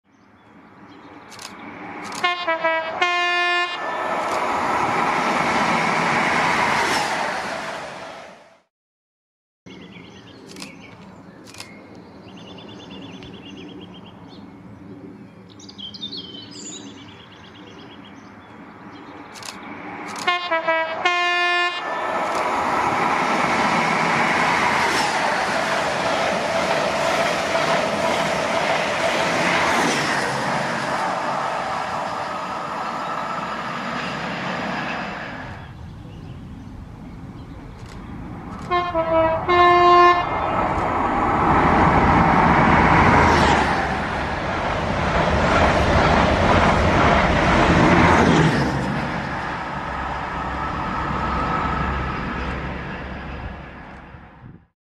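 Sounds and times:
diesel train engine hum: 1.3s - 8.6s, 18.7s - 54.7s
train wheels rushing past: 1.3s - 8.6s, 19.4s - 35.9s, 37.7s - 54.0s
two-tone train horn: 2.1s - 4.0s, 20.2s - 22.0s, 38.6s - 40.4s.

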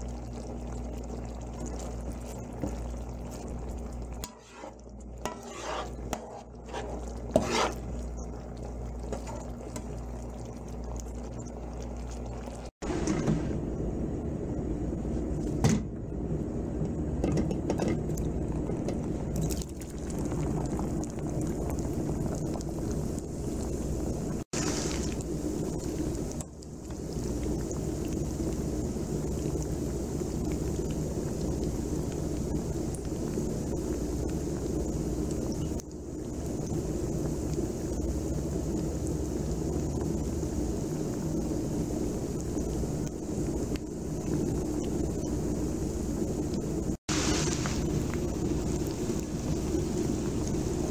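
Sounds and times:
chicken deep-frying in oil: 0.0s - 50.9s
low hum: 0.0s - 50.9s
skimmer scraping in a wok: 1.8s - 8.4s, 9.0s - 10.0s, 24.5s - 25.4s, 47.1s - 50.9s.

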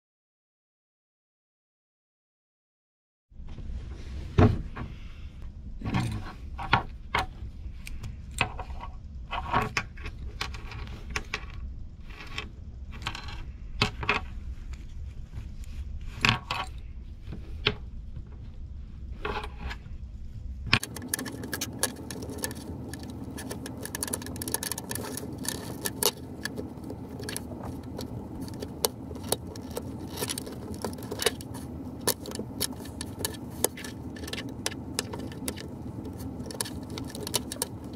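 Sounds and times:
small clicks and scratching: 5.8s - 18.4s, 20.7s - 37.9s
metal buckle clinking: 20.8s - 37.9s.

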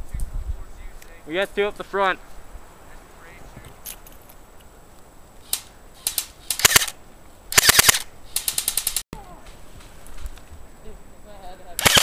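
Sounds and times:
airsoft rifle firing: 5.5s - 9.0s, 11.8s - 12.0s.

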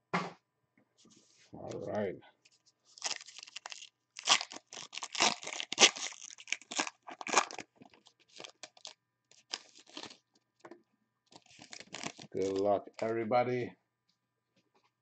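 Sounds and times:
wrapper crinkling and ripping: 2.9s - 10.4s, 11.3s - 13.1s
cards crackling: 3.0s - 10.2s, 11.3s - 13.1s.

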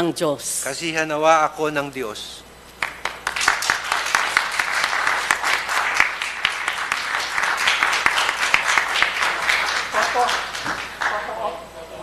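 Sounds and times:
audience applauding: 2.8s - 11.5s.

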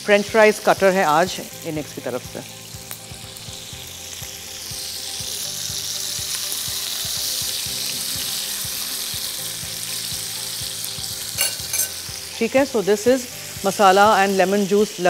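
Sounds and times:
chicken frying in hot oil: 0.0s - 15.0s.

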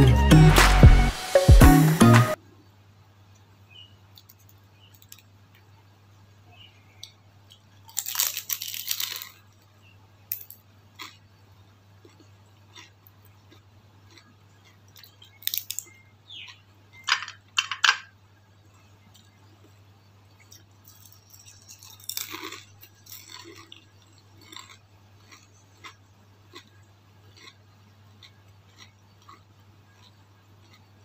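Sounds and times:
faint low hum: 2.4s - 31.0s
loud crunching bites: 7.5s - 9.5s, 12.0s - 16.6s, 20.4s - 27.6s
chewing and mouth clicks: 10.4s - 11.2s, 12.0s - 16.6s, 18.7s - 31.0s.

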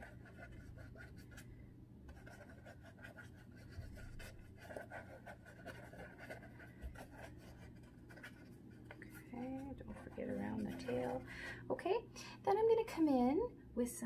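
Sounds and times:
paintbrush dabbing and brushing: 2.1s - 11.3s.

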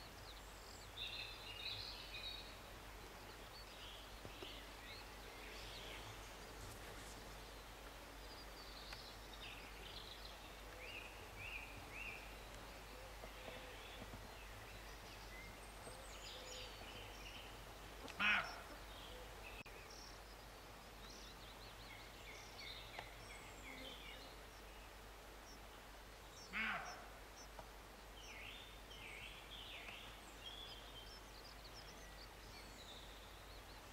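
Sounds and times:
small birds chirping: 0.0s - 33.9s
deer barking: 18.2s - 18.7s, 26.5s - 27.0s.

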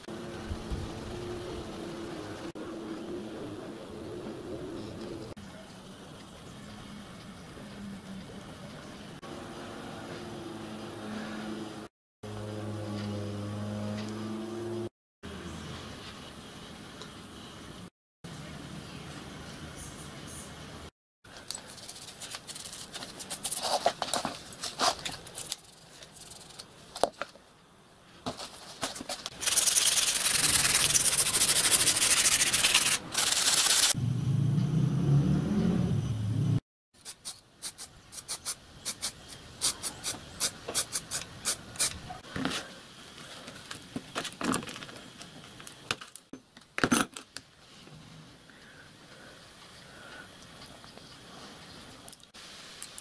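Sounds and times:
clicks and scrapes of small parts: 21.3s - 27.3s
brush scrubbing metal: 21.7s - 26.7s, 29.2s - 34.0s
spray paint can hissing: 25.2s - 26.7s, 29.3s - 34.0s, 37.0s - 42.0s.

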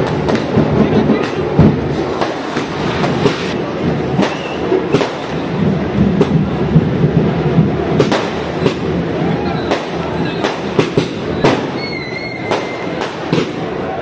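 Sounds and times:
dense continuous din: 0.0s - 14.0s
firecrackers bangs: 0.0s - 14.0s
wavering firework whistle: 4.1s - 5.4s, 8.3s - 13.9s.

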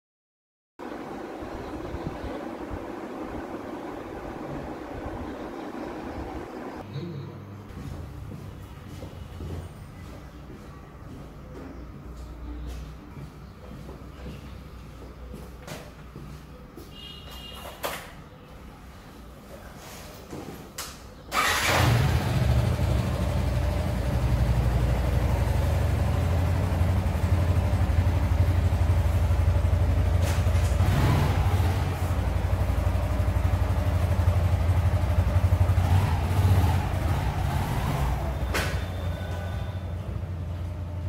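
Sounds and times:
motorcycle engine revving: 21.3s - 40.4s.

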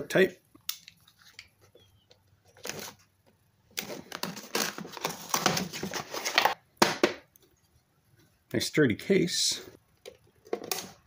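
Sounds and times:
cardboard sleeve scraping and rustling: 2.5s - 3.1s, 3.8s - 6.6s.

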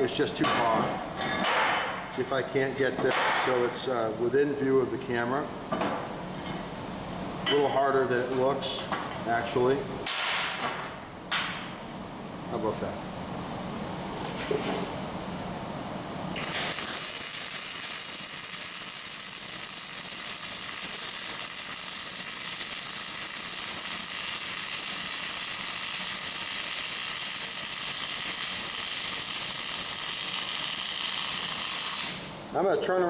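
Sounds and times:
arc welding crackling sizzle: 16.3s - 32.4s.

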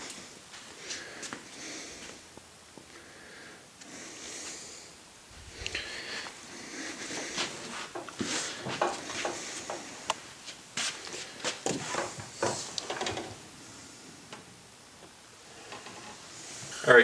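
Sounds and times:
rustling: 5.3s - 14.4s.

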